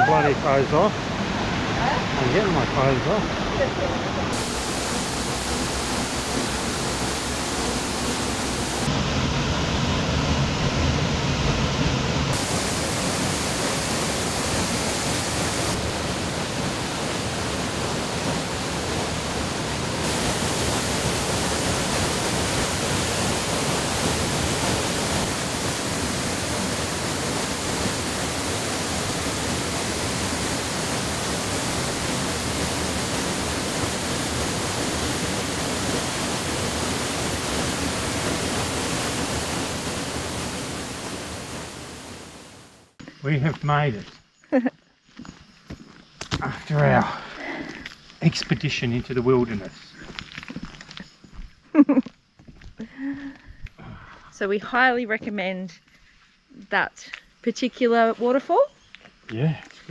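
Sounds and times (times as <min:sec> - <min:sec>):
waterfall rushing: 0:00.0 - 0:43.0.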